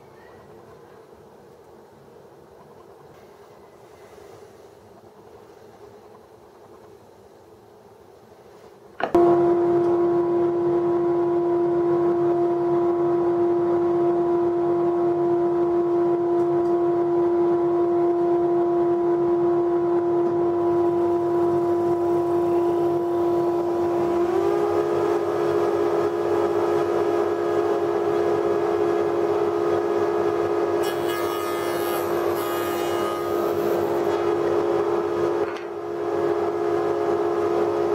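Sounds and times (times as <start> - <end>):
cutter machining wood: 30.8 - 34.3.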